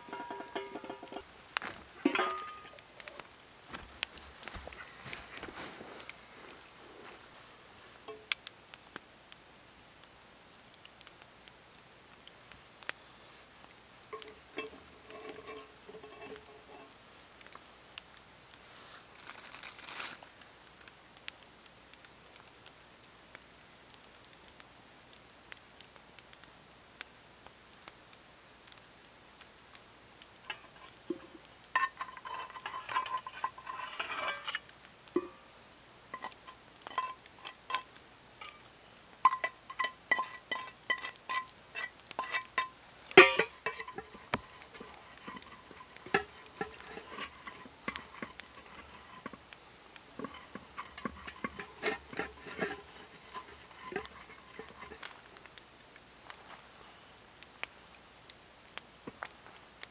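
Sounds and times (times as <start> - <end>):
light metal clinks of pan: 0.0 - 3.2, 8.0 - 8.4, 14.1 - 16.9, 30.4 - 35.4, 36.1 - 49.5, 50.2 - 55.2
light ticks and crackles: 0.0 - 59.9
plastic bag rustling: 3.0 - 8.0, 18.7 - 20.3.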